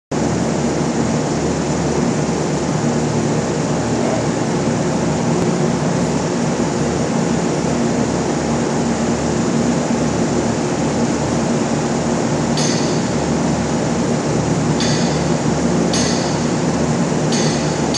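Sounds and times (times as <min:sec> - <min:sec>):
low machinery hum: 0:00.1 - 0:17.9
metallic clink: 0:12.6 - 0:13.2, 0:15.9 - 0:16.6, 0:17.3 - 0:17.9.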